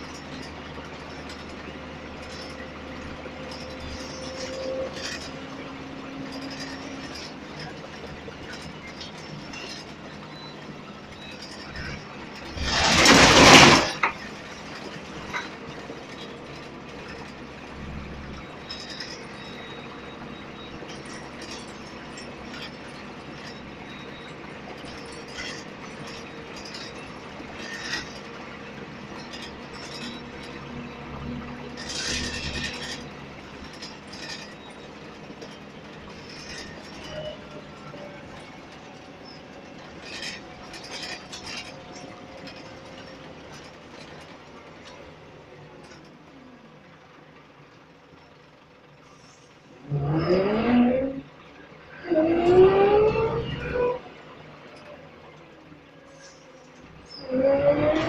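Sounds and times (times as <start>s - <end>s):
bus engine: 0.0s - 58.0s
rattles: 0.0s - 58.0s
bus engine revving: 11.3s - 45.4s, 49.1s - 54.6s, 56.1s - 58.0s.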